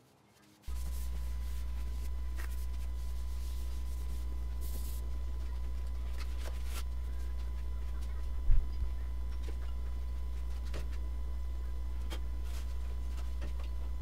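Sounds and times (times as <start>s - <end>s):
hand wiping over tabletop: 0.4s - 8.2s
steady low hum: 0.7s - 14.0s.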